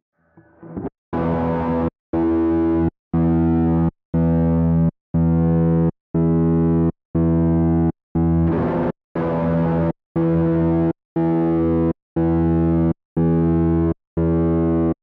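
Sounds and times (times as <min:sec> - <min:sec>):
pulsing electric guitar chord: 0:08.5 - 0:10.8.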